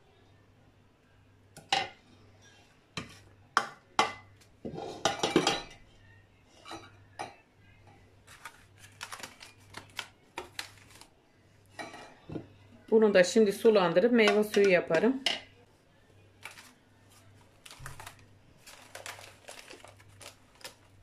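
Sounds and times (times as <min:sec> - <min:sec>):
kitchen utensils clinking: 0:04.0 - 0:05.8.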